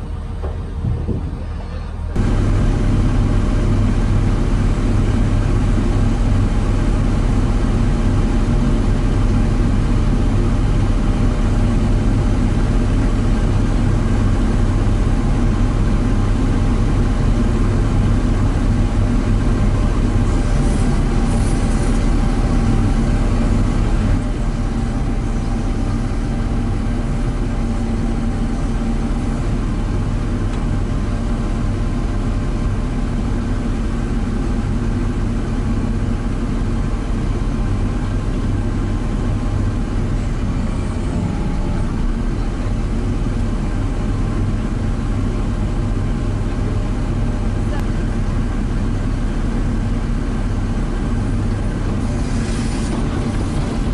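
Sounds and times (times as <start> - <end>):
heavy engine droning: 0.0 - 53.9.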